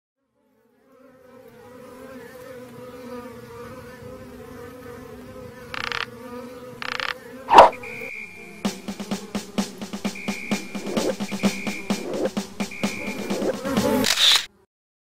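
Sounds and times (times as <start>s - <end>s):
drone propellers buzzing: 5.8s - 6.1s, 6.8s - 14.5s.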